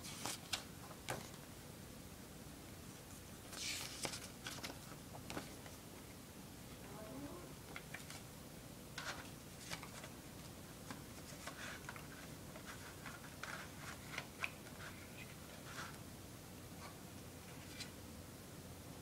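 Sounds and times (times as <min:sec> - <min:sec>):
paper booklet rustling: 0:00.0 - 0:01.4, 0:02.9 - 0:05.8, 0:07.7 - 0:08.3, 0:09.0 - 0:16.0, 0:16.8 - 0:18.0.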